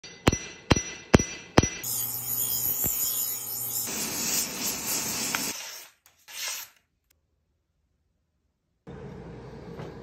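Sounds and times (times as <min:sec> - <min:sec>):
bench grinder grinding blade: 0:01.8 - 0:06.8.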